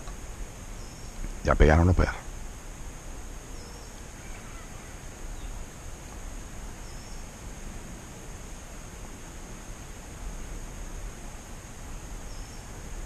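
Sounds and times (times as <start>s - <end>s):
faint bird chirp: 0.0s - 2.2s, 3.4s - 5.7s, 6.8s - 7.5s, 12.1s - 13.0s.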